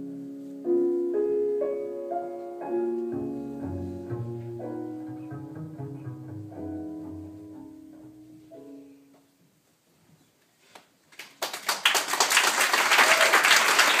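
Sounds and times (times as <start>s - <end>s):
instrumental music with low notes: 0.0s - 9.2s
audience applause: 11.2s - 14.0s.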